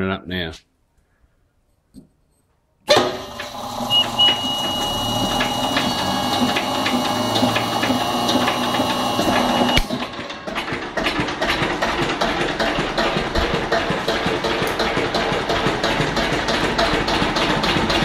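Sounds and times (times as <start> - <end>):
diesel engine knocking: 3.6 - 18.0
steady high whine: 3.7 - 9.9.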